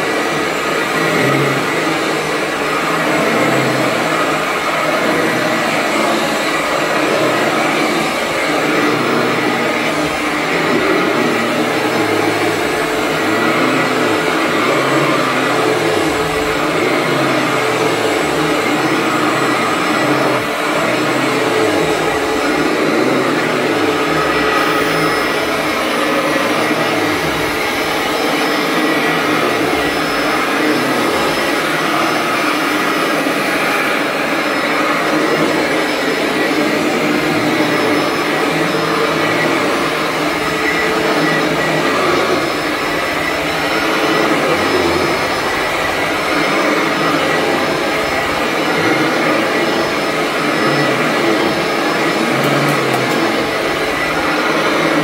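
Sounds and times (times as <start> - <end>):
vacuum cleaner on carpet: 0.0 - 55.0.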